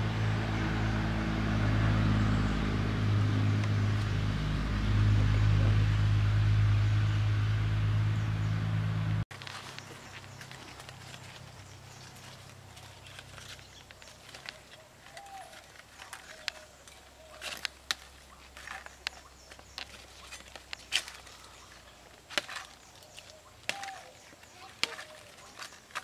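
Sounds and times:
leaves snapping and rustling: 0:09.3 - 0:26.0.

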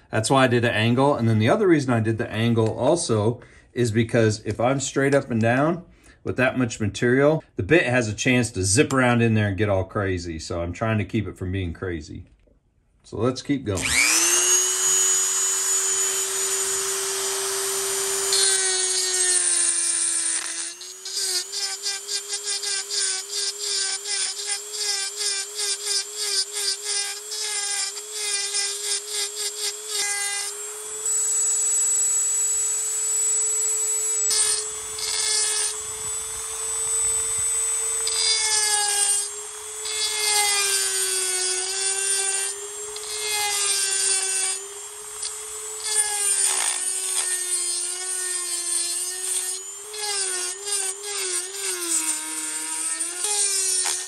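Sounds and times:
rotary tool grinding metal: 0:13.8 - 0:54.0.

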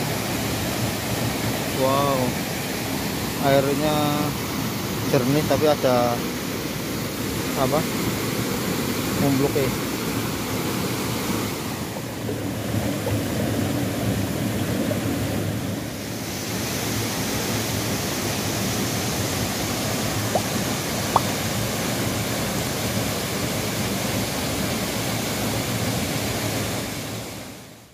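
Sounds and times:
waterfalls pouring into pool: 0:15.6 - 0:27.6.

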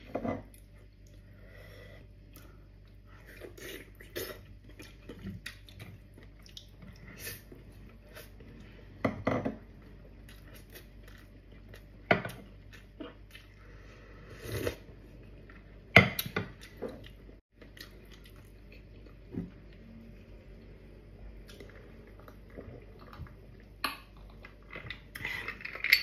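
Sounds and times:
person chewing and smacking: 0:02.3 - 0:08.4, 0:10.2 - 0:13.6, 0:16.2 - 0:19.8
person slurping soup: 0:14.0 - 0:14.8.

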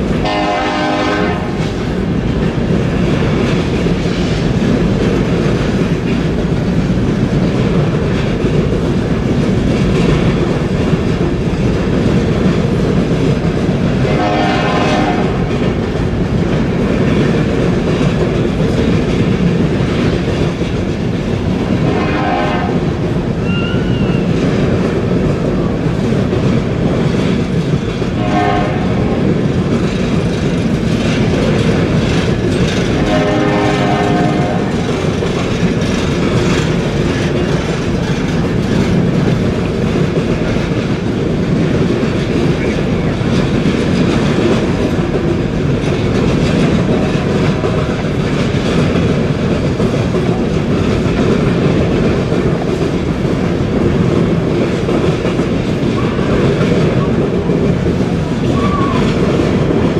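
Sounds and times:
train wheels clattering over rails: 0:00.0 - 0:59.9
train horn: 0:00.2 - 0:01.6, 0:14.0 - 0:15.5, 0:21.8 - 0:24.2, 0:28.1 - 0:29.2, 0:32.9 - 0:35.0.

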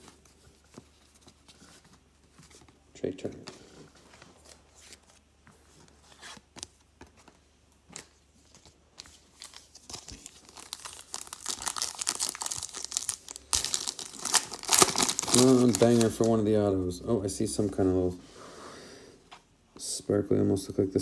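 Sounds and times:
foil wrapper tearing and crinkling: 0:09.4 - 0:16.4.

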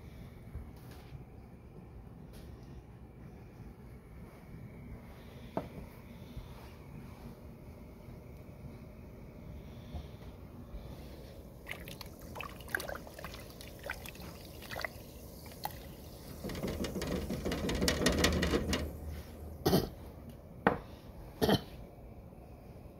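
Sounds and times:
water sloshing: 0:11.6 - 0:18.1
water bubbling in pot: 0:11.6 - 0:19.1.

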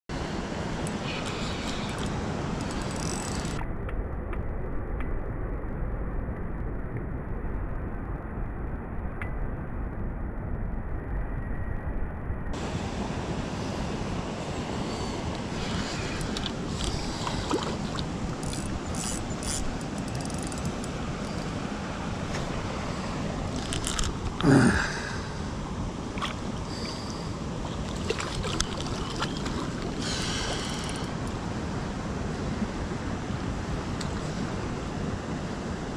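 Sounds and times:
wind rushing on microphone: 0:00.1 - 0:35.9
fishing reel clicks and handling: 0:18.4 - 0:20.9, 0:23.6 - 0:24.2.

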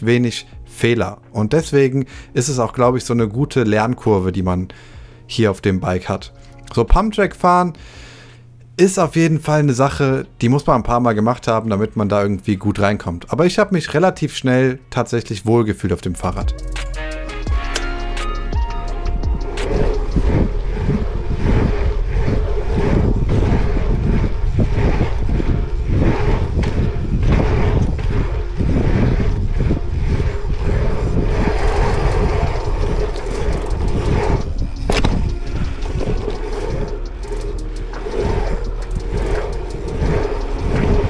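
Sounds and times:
bike tyres rolling on asphalt: 0:18.4 - 0:41.0
wind rushing over microphone: 0:18.4 - 0:41.0.

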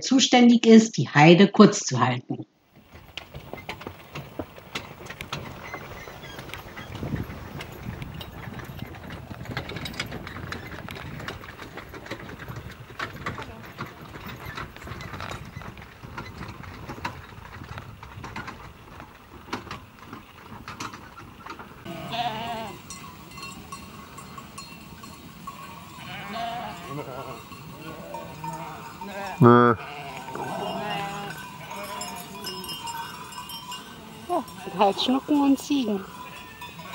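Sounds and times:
small clicks and rustling: 0:02.7 - 0:21.9
sheep and goats bleating: 0:21.8 - 0:24.7, 0:25.4 - 0:36.9.

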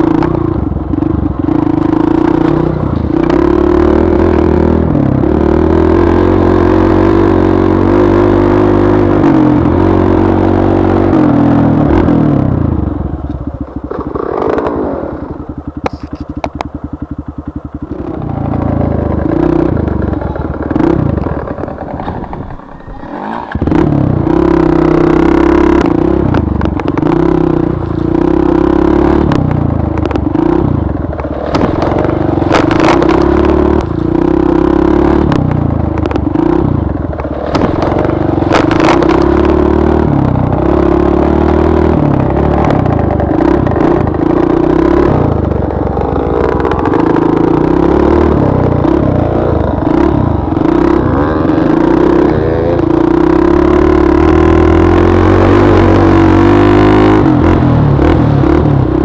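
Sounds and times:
motorcycle engine running: 0:00.0 - 0:59.0.

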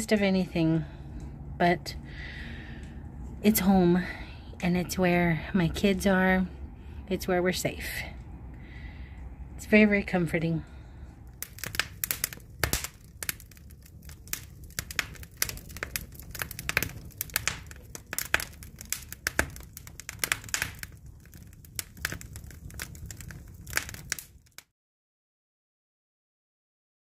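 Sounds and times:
low steady rumble: 0:00.0 - 0:24.5
logs crackling and popping: 0:11.2 - 0:24.7.

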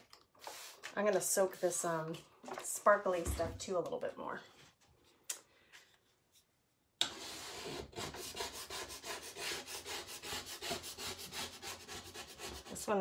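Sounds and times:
plastic scraper on wet chalkboard: 0:07.0 - 0:13.0.

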